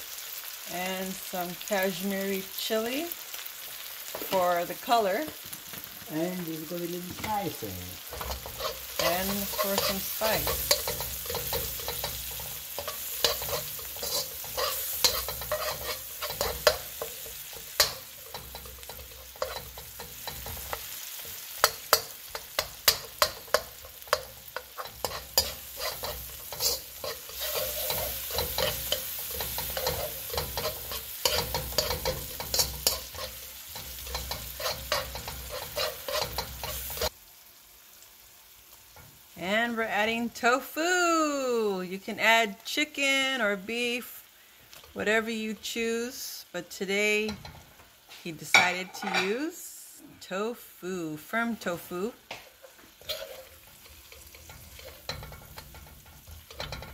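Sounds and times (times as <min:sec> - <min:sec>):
vegetables sizzling in oil: 0:00.0 - 0:56.9
metal spoon scraping a wok: 0:08.0 - 0:37.1, 0:47.3 - 0:49.4, 0:52.4 - 0:56.9.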